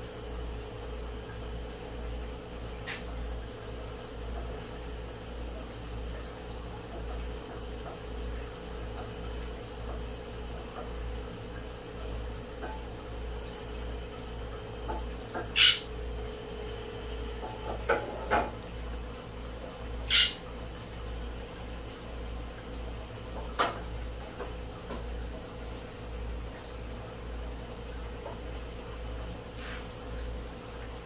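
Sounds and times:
sharp knocks and clicks: 0:17.4 - 0:18.6.

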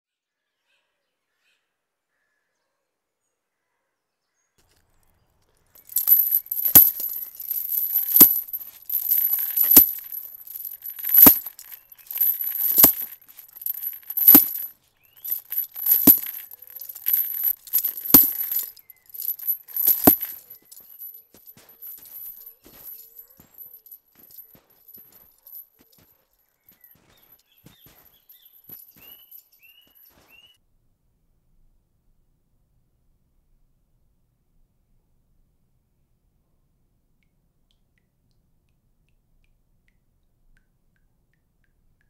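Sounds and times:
metallic jingling rattle: 0:05.8 - 0:25.6
slow heavy footsteps: 0:05.9 - 0:23.6.

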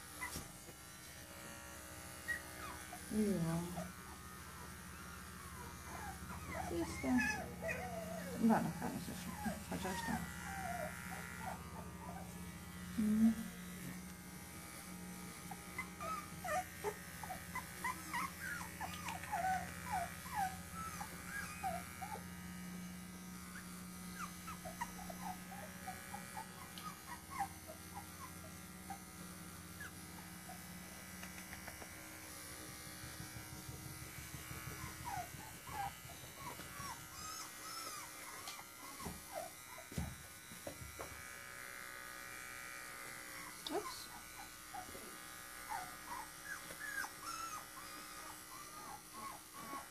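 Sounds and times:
pet clipper humming: 0:00.0 - 0:49.9
puppy squeaking and whimpering: 0:00.2 - 0:00.4, 0:02.3 - 0:03.1, 0:05.5 - 0:12.3, 0:15.5 - 0:22.2, 0:23.6 - 0:29.0, 0:34.8 - 0:39.9, 0:43.4 - 0:44.9, 0:45.7 - 0:49.9.

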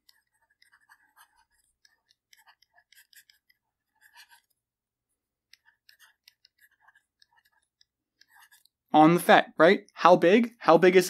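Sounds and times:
stylus tapping on tablet screen: 0:00.0 - 0:04.6, 0:05.4 - 0:08.8.

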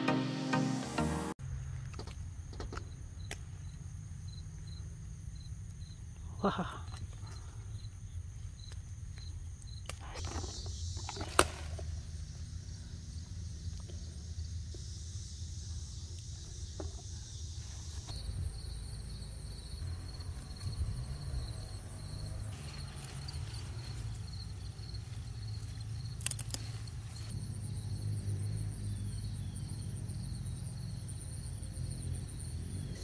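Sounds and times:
insects trilling: 0:01.4 - 0:33.0.

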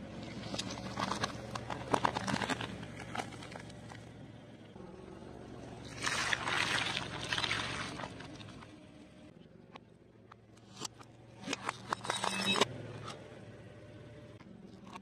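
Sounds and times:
low engine hum: 0:00.0 - 0:11.4, 0:12.6 - 0:15.0
wet squishing burst: 0:05.9 - 0:08.4.

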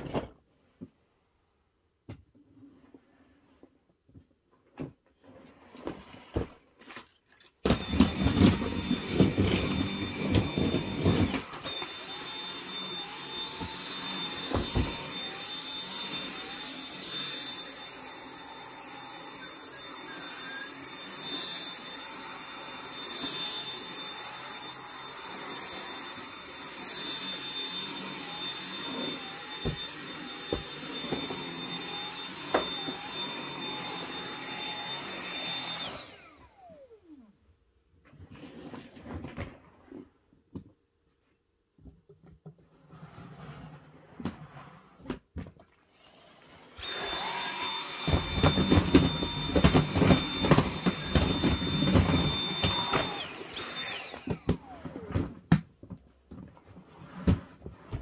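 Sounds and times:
vacuum cleaner high whine: 0:07.6 - 0:37.3, 0:46.0 - 0:55.5.

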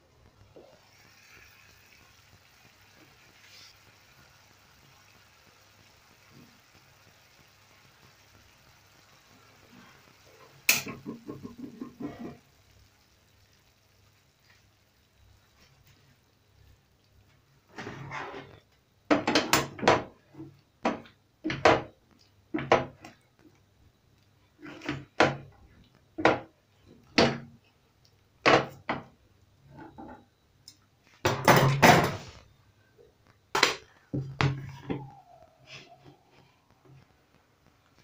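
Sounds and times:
spatula scraping a frying pan: 0:10.9 - 0:12.5, 0:17.7 - 0:18.6.

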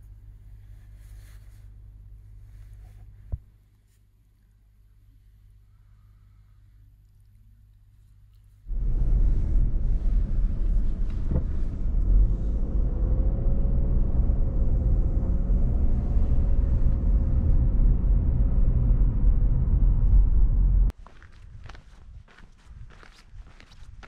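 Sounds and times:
car interior road rumble: 0:08.7 - 0:21.0.

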